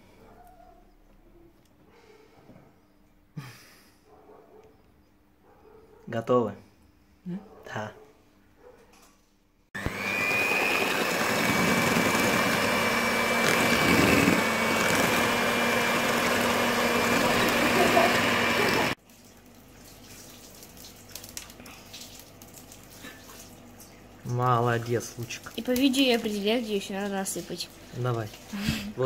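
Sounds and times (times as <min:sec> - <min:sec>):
electric hand mixer whining: 0:09.8 - 0:19.0.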